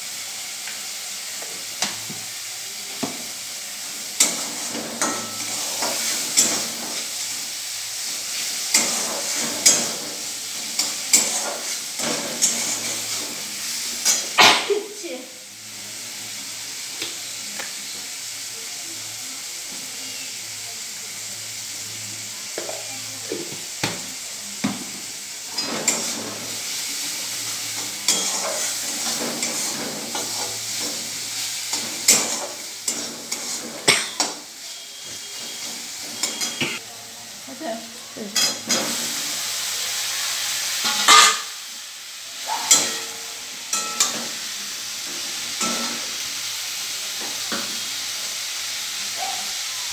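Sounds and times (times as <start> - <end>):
vegetables sizzling in oil: 0.0 - 49.9
steel spatula scraping pan: 8.6 - 13.4, 25.5 - 26.6, 27.8 - 36.8, 40.8 - 41.5.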